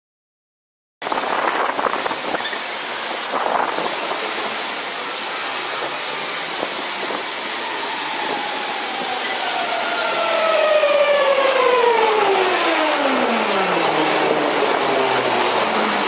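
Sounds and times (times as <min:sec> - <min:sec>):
train rushing noise: 0:01.0 - 0:16.0
faint falling whine: 0:07.5 - 0:16.0.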